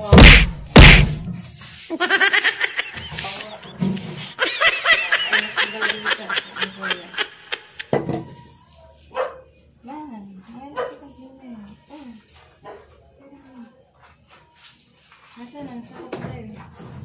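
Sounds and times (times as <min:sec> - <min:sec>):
high-pitched rapid laughter: 0:01.9 - 0:07.9.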